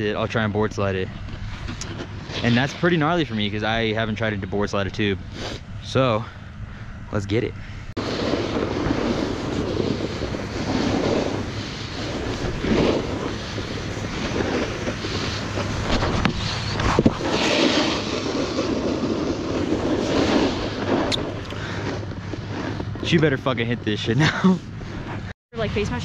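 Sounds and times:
snowboard scraping over snow: 0.0 - 5.6, 8.0 - 25.3
wind noise on microphone: 8.0 - 23.3.

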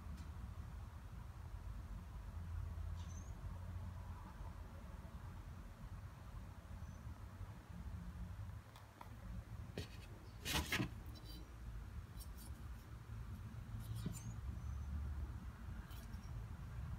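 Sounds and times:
knife handling on paper: 9.8 - 11.5
knife scrape: 12.1 - 14.7, 15.8 - 16.4.

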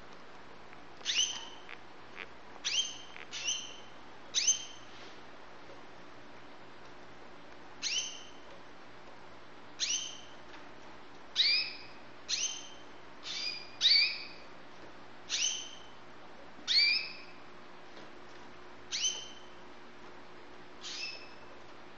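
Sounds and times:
faint steady hum: 0.0 - 21.9
canary call notes: 1.0 - 4.8.

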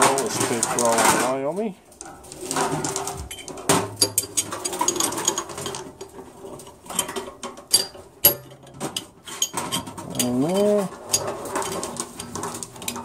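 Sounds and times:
metal balls clicking and clinking: 0.0 - 13.0.

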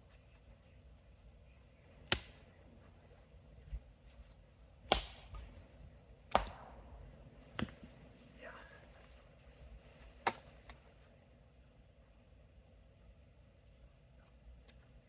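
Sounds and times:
axe chopping log: 2.1 - 2.3, 4.9 - 5.4, 6.3 - 6.7, 7.5 - 7.9.

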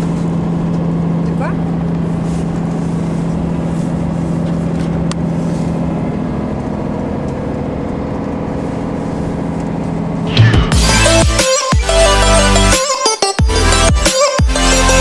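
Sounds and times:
constant low hum: 0.0 - 12.0
coach engine and road drone: 0.0 - 15.0
music: 10.3 - 15.0.

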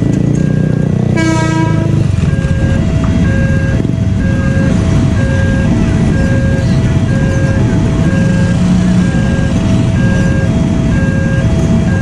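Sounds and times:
low rumble of passing train: 0.0 - 12.0
motorcycles idling: 0.0 - 12.0
two-pitch level-crossing alarm: 0.4 - 12.0
train horn blast: 1.1 - 2.8.

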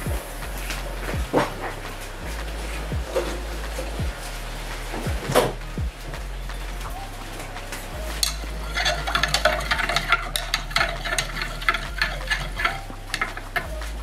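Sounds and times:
rod clicking and scraping jug wall: 7.7 - 14.0
rod stirring liquid in plastic jug: 8.2 - 14.0.

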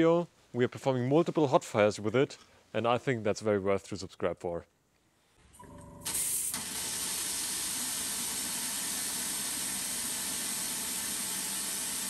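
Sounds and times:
loud steady hiss of spray: 6.0 - 12.0.

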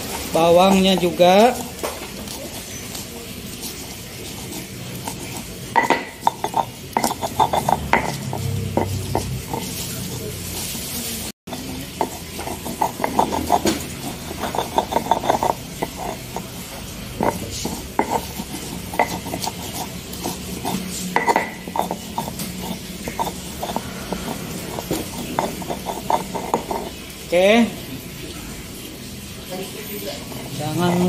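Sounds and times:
stone scraping on stone: 0.3 - 27.3
stone pestle knocking: 5.0 - 9.8, 11.5 - 27.0.

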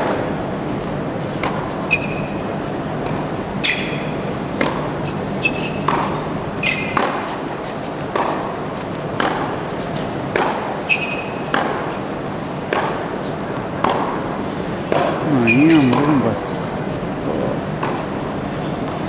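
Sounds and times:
tennis balls struck by rackets: 1.3 - 16.7, 17.7 - 19.0
shoe squeaks on court: 1.8 - 2.5, 5.4 - 7.0, 10.8 - 11.5, 15.3 - 16.2.

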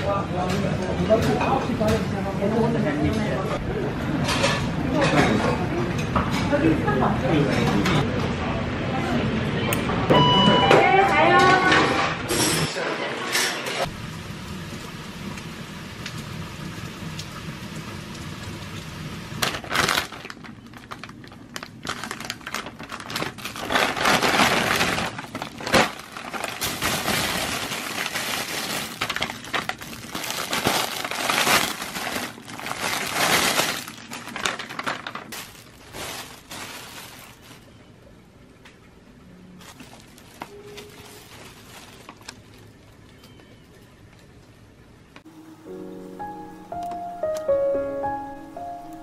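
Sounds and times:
steady rain: 13.9 - 19.4
plastic bags crinkling: 19.4 - 37.9, 39.6 - 43.1.

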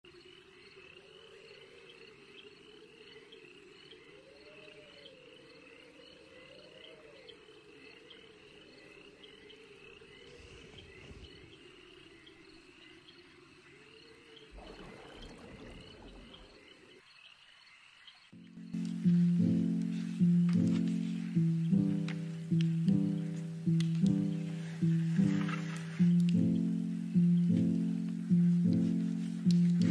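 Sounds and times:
frogs trilling: 0.1 - 29.9
insects chirping: 0.1 - 29.9
music: 18.4 - 29.9.

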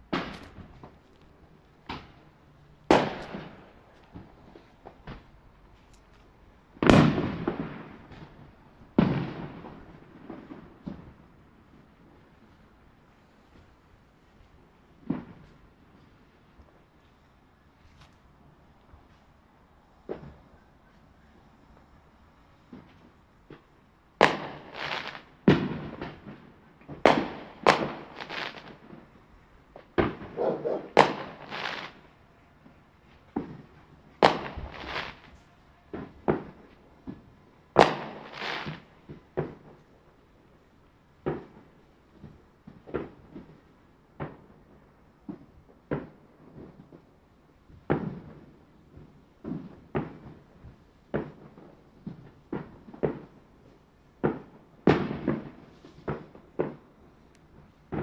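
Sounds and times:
fireworks bangs with rumble: 0.0 - 1.0, 1.8 - 5.3, 6.7 - 12.6, 22.6 - 29.2, 29.8 - 32.1, 33.3 - 39.8, 47.7 - 53.6, 54.2 - 57.0, 57.6 - 58.0.

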